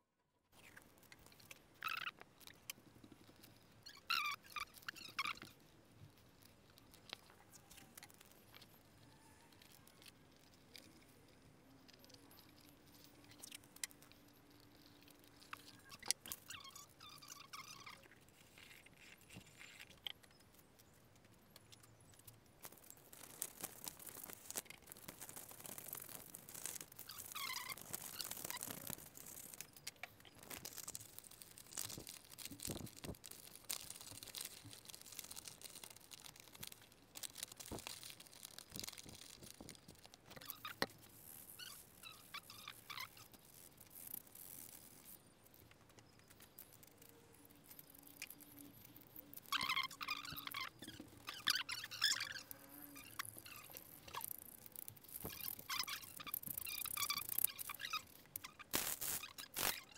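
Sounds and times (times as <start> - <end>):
hands tapping masking tape: 53.2 - 59.9
paper rustling and cutting: 58.5 - 59.9.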